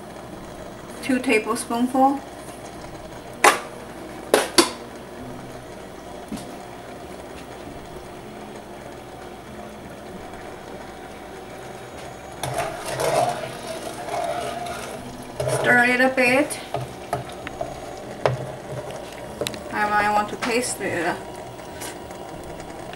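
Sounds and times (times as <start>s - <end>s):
sauce heating in a pan: 0.0s - 22.9s
spatula stirring and scraping pan: 12.0s - 22.0s.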